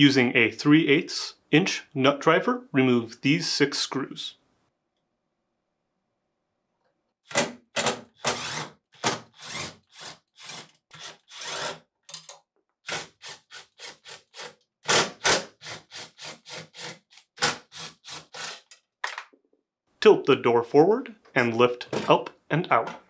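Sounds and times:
cordless power driver bursts: 0:07.3 - 0:11.8.

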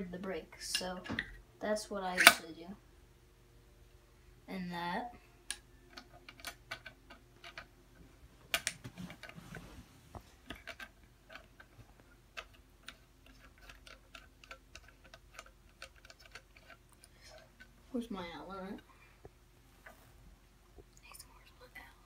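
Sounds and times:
small metal parts clicking: 0:05.5 - 0:07.7, 0:12.4 - 0:17.7.

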